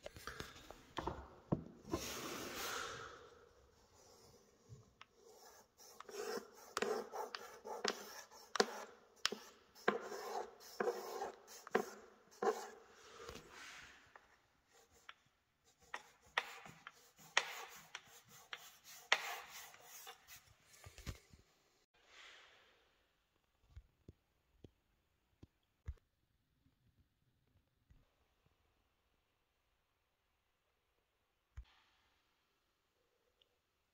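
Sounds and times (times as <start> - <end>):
wooden strip scraping on tile: 3.9 - 21.2.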